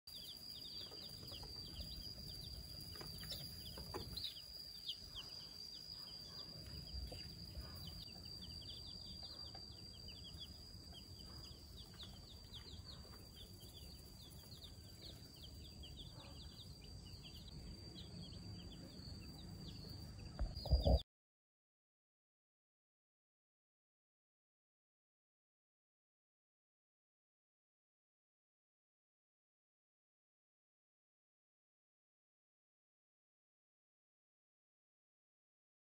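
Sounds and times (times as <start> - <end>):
baby chicks peeping: 0.1 - 21.0.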